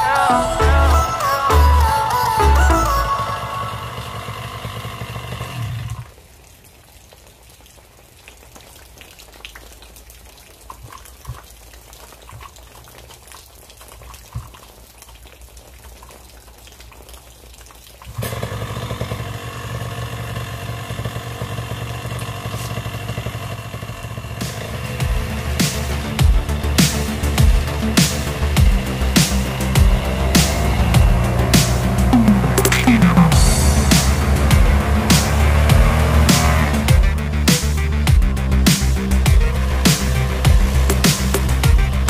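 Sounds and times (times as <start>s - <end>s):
loud music: 0.0s - 4.3s, 24.4s - 42.0s
light rain pattering and dripping: 4.7s - 42.0s.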